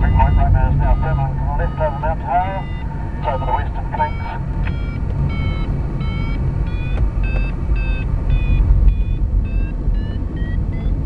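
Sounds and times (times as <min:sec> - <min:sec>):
air rushing past cockpit: 0:00.0 - 0:11.0
variometer short beeps: 0:00.0 - 0:11.0.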